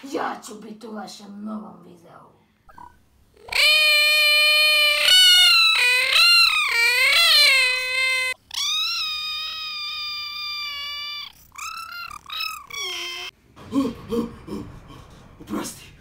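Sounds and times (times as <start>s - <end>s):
high-pitched cartoonish screaming: 3.4s - 13.4s.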